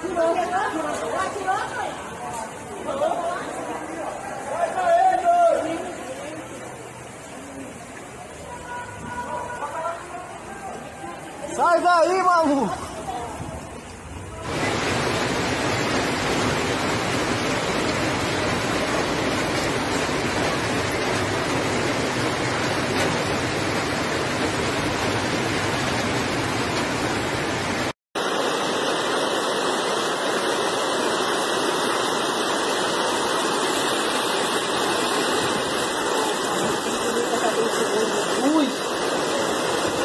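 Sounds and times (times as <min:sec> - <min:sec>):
floodwater rushing: 0:00.0 - 0:40.0.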